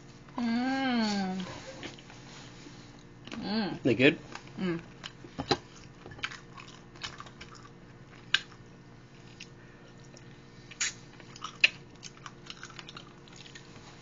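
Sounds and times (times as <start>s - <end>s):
person chewing food: 5.0s - 14.0s.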